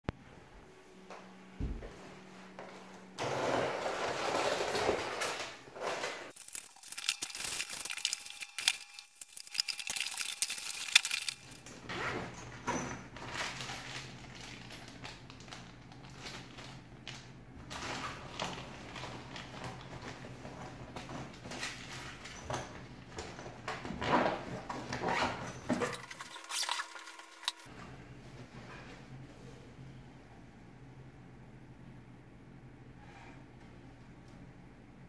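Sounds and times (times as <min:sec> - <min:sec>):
cardboard crinkling: 0:06.3 - 0:11.6, 0:25.7 - 0:27.7
nylon bag rustling: 0:06.3 - 0:11.7, 0:25.7 - 0:27.7
plastic bag crinkling: 0:06.3 - 0:11.7, 0:25.7 - 0:27.7.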